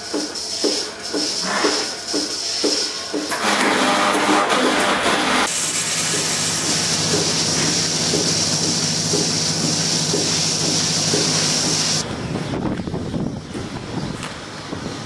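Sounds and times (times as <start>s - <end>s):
low machine hum: 0.0s - 15.0s
hiss of water spraying: 5.5s - 12.0s.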